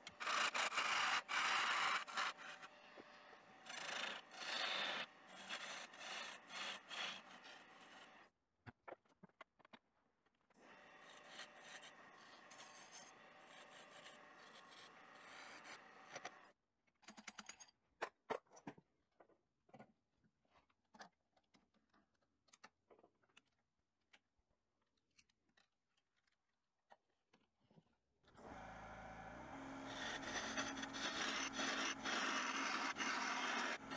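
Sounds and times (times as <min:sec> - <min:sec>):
rubbing against wood on lathe: 0:29.7 - 0:33.9.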